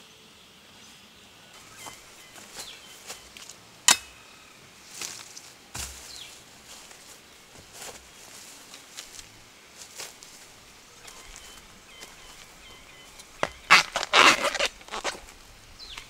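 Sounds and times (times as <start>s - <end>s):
faint bird chirps: 0.0s - 3.4s, 10.9s - 13.8s
footsteps rustling through undergrowth: 1.5s - 3.8s, 4.7s - 16.0s
machete cutting bamboo: 3.9s - 4.2s.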